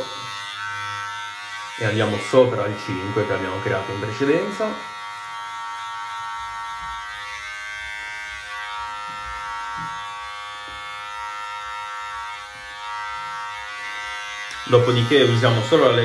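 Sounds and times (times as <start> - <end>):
hair clipper buzzing: 0.0 - 16.0.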